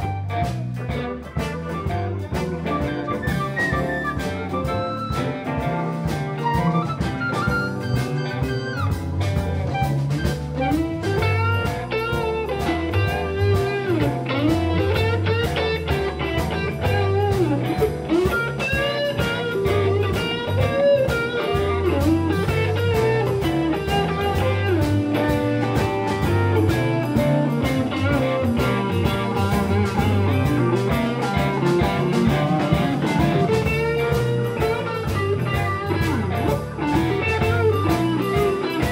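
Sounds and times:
electric blues band playing: 0:00.0 - 0:38.9
lead guitar with bent notes: 0:00.0 - 0:38.9.

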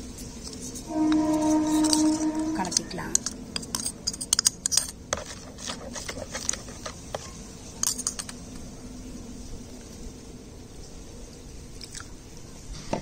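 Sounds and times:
spoon scraping ceramic bowl: 0:00.5 - 0:08.4
stirring in water: 0:00.7 - 0:07.4.

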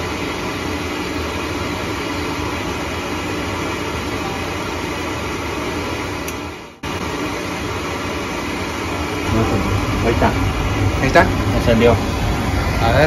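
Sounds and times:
oil burner blower rushing: 0:00.0 - 0:13.0
low hum: 0:08.6 - 0:13.0.

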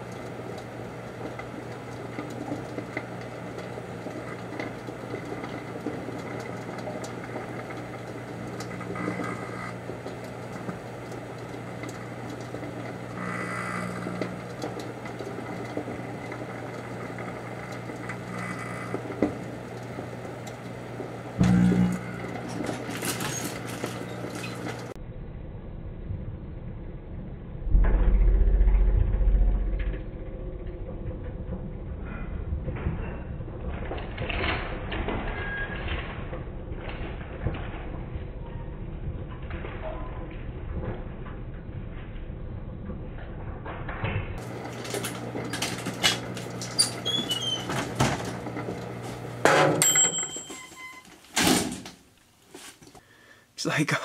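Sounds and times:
crackling and popping: 0:00.0 - 0:25.0
microwave oven hum: 0:00.0 - 0:54.0.

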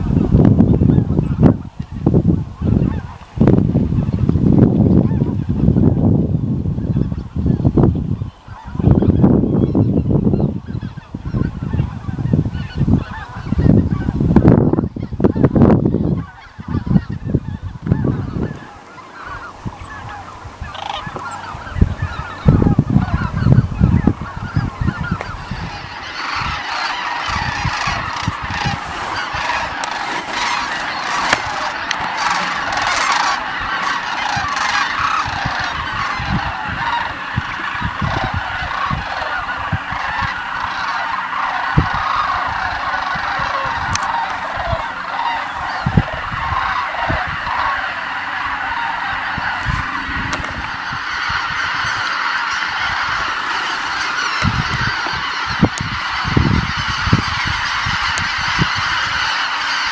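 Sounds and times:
geese honking: 0:00.0 - 0:59.9
low rumbling bursts: 0:41.6 - 0:58.9.

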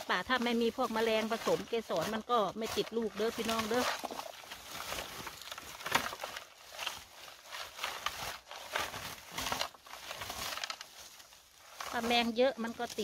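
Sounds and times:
rustling leaves and twigs: 0:00.0 - 0:13.0
twigs crackling and snapping: 0:00.0 - 0:13.0.

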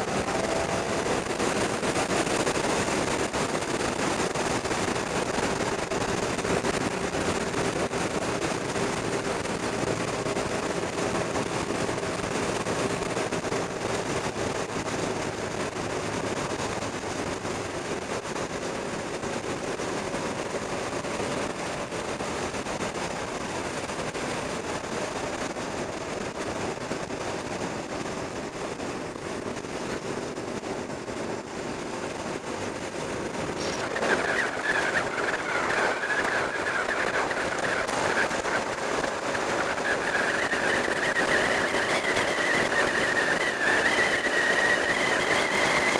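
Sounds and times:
high engine whine: 0:00.0 - 0:45.9
motorcycle engine running: 0:00.0 - 0:45.9
wind rush: 0:00.0 - 0:45.9.

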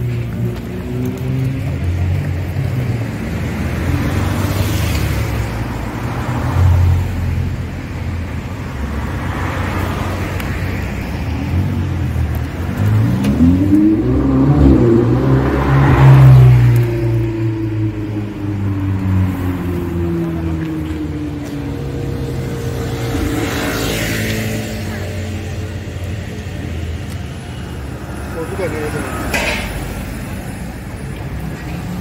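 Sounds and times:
cars driving past: 0:00.0 - 0:32.0
sports car engine revving: 0:12.5 - 0:20.6.

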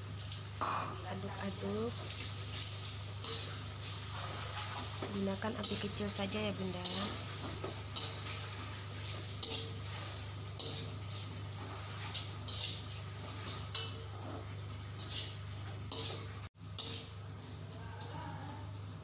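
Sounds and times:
metal spatula scraping wok: 0:01.2 - 0:18.7.

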